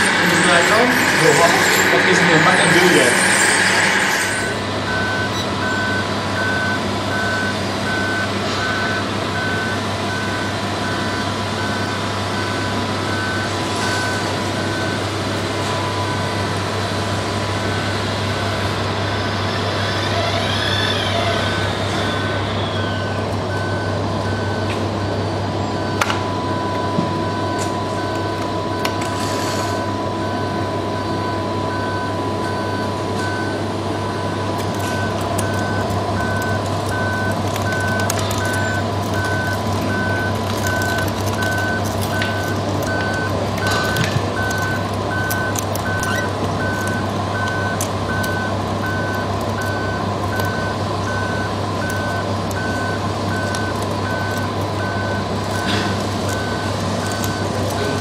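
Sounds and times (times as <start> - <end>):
electronic reversing beeper: 0.0 - 16.4.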